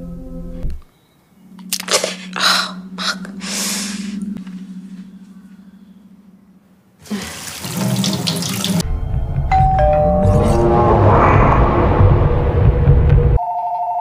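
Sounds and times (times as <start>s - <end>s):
low drone: 1.3s - 6.8s, 8.8s - 13.4s
tap water running into sink: 7.2s - 8.8s
deep rumble: 8.8s - 13.4s
descending chime-like tones: 9.5s - 11.4s.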